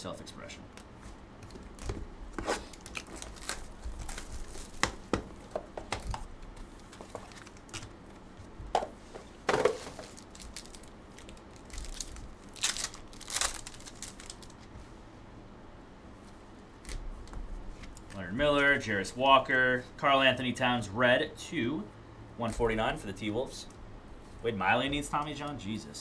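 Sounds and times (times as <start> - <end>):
wrapper crinkling: 1.5 - 5.0, 9.7 - 14.7
wrapper ripping: 1.7 - 4.9, 9.8 - 14.6.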